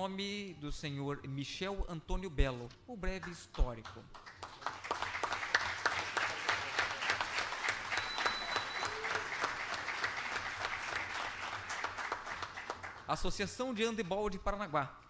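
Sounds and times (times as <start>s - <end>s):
audience applauding: 3.7s - 13.3s.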